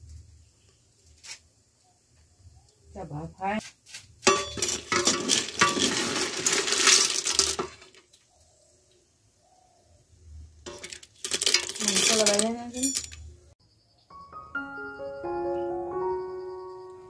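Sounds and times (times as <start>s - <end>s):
metal skimmer scraping cooking pot: 4.3s - 7.9s.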